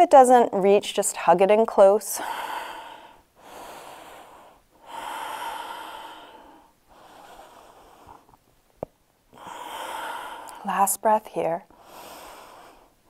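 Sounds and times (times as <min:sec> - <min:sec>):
woman breathing deeply: 0:02.2 - 0:08.4, 0:09.3 - 0:10.7, 0:11.7 - 0:13.0.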